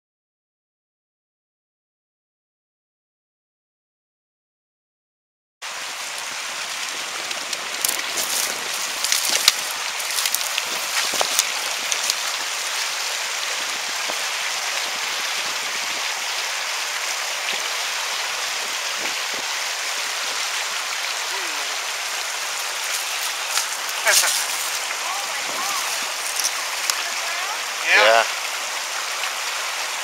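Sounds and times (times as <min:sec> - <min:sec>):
stream rushing over rocks: 0:05.6 - 0:30.0
sharp clicks and ticks: 0:10.2 - 0:12.2.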